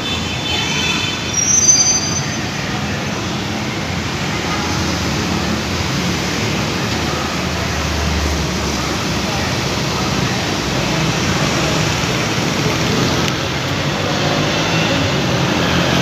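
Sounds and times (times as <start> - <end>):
vehicle engines rumbling: 0.0 - 16.0
high-pitched squeal: 1.1 - 3.4
car engine hum: 8.4 - 16.0.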